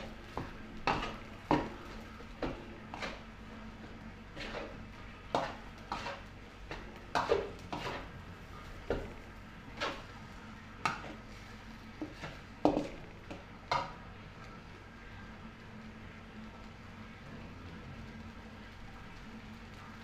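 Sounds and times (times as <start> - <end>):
metal spatula scraping a wok: 0.8 - 3.3, 4.3 - 8.2, 9.7 - 10.1.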